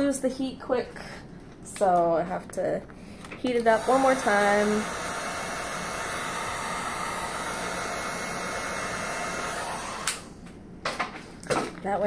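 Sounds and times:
heat gun blowing hot air: 0:03.6 - 0:10.4.

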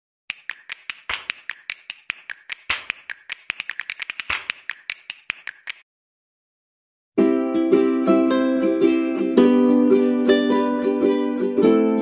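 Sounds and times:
rapid sharp clicks and snaps: 0:00.3 - 0:05.8.

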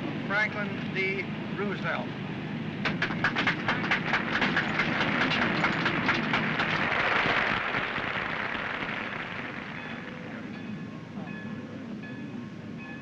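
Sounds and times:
crowd applauding: 0:03.5 - 0:10.8.

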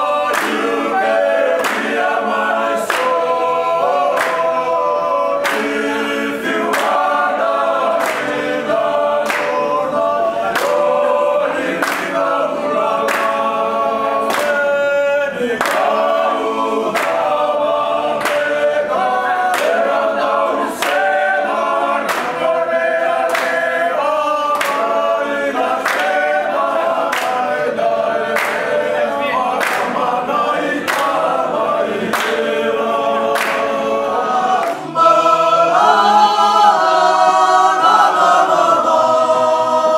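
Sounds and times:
hand claps: 0:00.0 - 0:36.0
men singing in harmony: 0:00.0 - 0:39.9.

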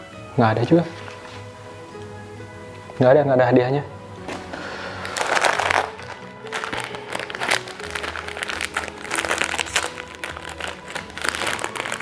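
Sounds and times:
background music: 0:00.0 - 0:12.0
plastic wrapper crinkling: 0:04.9 - 0:12.0
scissors cutting plastic: 0:05.1 - 0:12.0.

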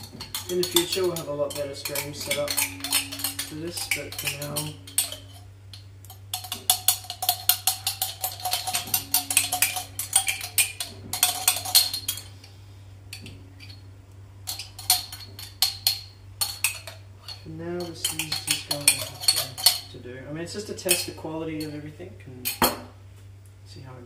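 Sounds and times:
utensil tapping inside glass jar: 0:00.0 - 0:12.3.

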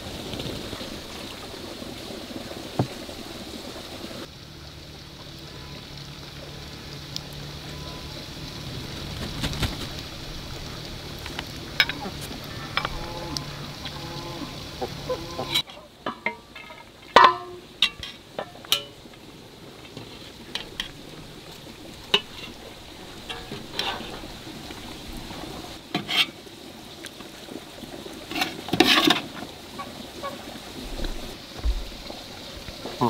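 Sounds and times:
metal ladle scraping a pot: 0:11.8 - 0:19.0, 0:22.1 - 0:26.4, 0:28.3 - 0:29.4.

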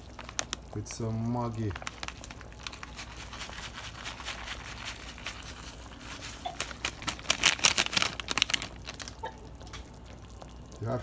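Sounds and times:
foil sachet crinkling: 0:00.0 - 0:10.0
soup bubbling softly: 0:08.7 - 0:11.0.

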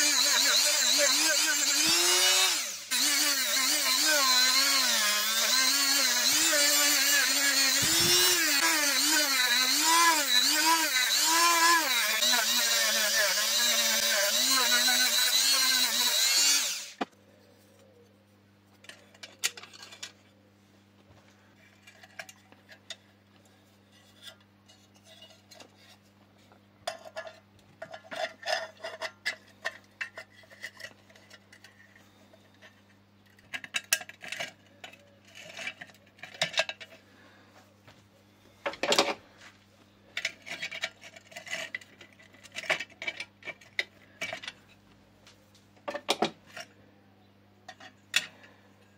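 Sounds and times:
small power tool whining: 0:00.0 - 0:17.1.

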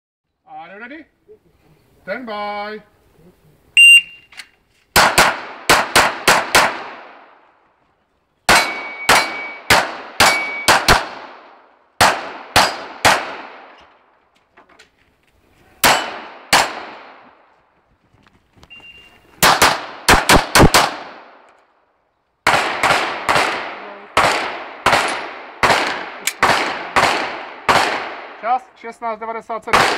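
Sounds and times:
pistol shots echoing: 0:05.0 - 0:07.4, 0:08.5 - 0:13.8, 0:15.8 - 0:17.3, 0:19.4 - 0:21.4, 0:22.4 - 0:28.6, 0:29.7 - 0:29.9.

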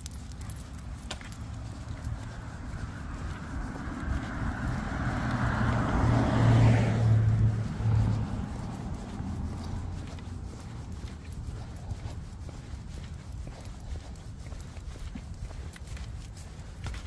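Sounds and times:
car driving past: 0:02.3 - 0:11.0.

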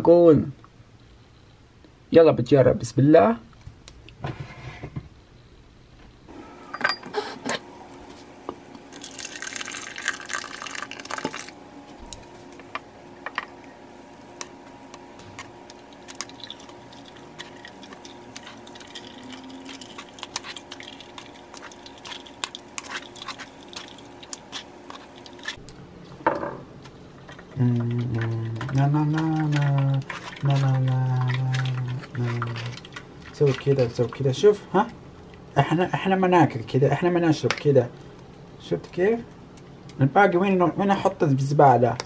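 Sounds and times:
juice dripping: 0:07.9 - 0:25.8, 0:27.1 - 0:35.6
juice splashing into a sieve: 0:08.9 - 0:11.6, 0:15.7 - 0:25.6, 0:27.6 - 0:34.3.

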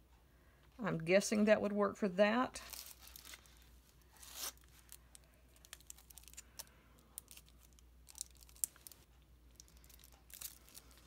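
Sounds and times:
plastic wrapping crinkling: 0:02.6 - 0:11.0.

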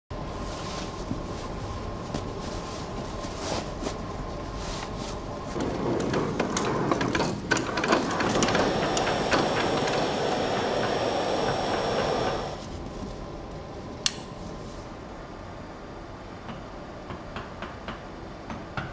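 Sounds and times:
electric chain hoist running: 0:05.6 - 0:12.6.

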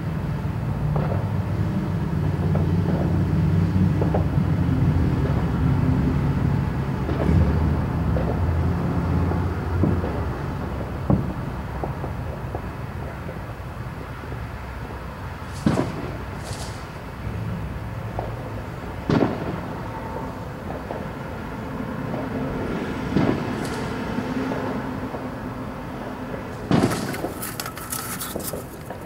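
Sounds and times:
firework crackling: 0:15.4 - 0:19.8, 0:23.2 - 0:29.0.

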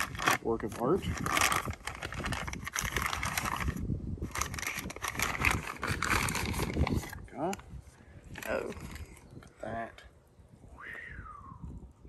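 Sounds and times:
packaging rustling and crinkling: 0:00.0 - 0:07.2.

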